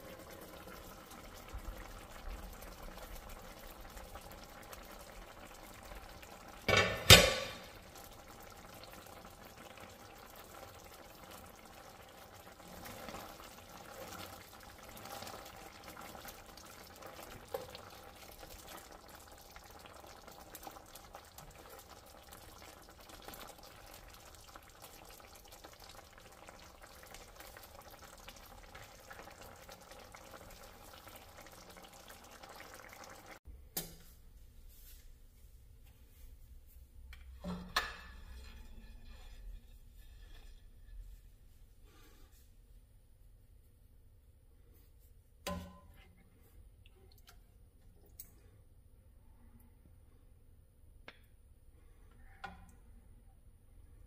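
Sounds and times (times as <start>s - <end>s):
curry simmering in a skillet: 0.0s - 33.5s, 36.9s - 42.6s
spatula stirring: 36.1s - 42.3s.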